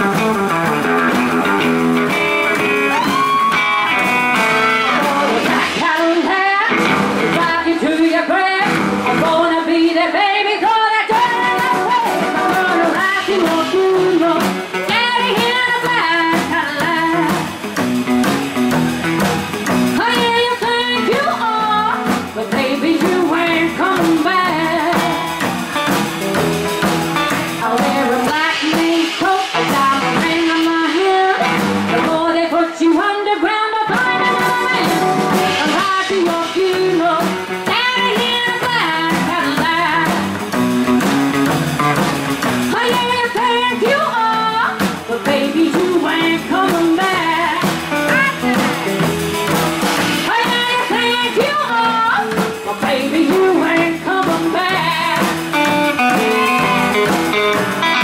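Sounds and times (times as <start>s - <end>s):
drums: 0.0s - 58.0s
electric guitar: 0.0s - 58.0s
woman singing: 4.8s - 17.6s, 19.9s - 25.7s, 27.2s - 40.5s, 42.6s - 49.1s, 50.2s - 58.0s.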